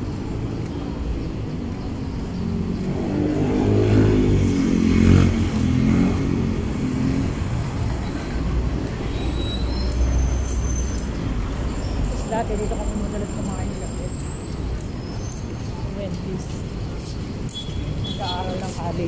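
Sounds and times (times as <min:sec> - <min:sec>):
low rumble of traffic: 0:00.0 - 0:19.0.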